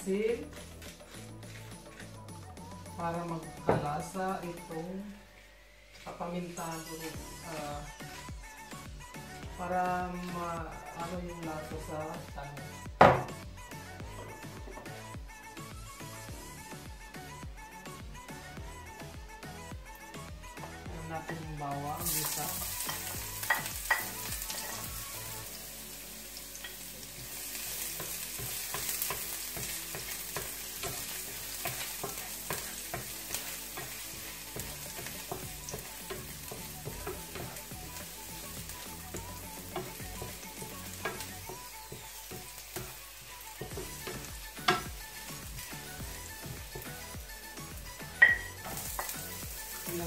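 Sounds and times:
garlic sizzling in oil: 0:21.6 - 0:50.0
spatula scraping pan: 0:26.6 - 0:45.9.

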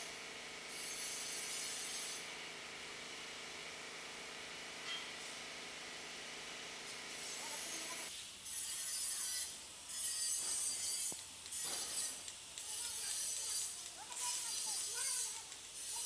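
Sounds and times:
paint spray gun hissing: 0:05.2 - 0:08.3, 0:11.3 - 0:16.0.

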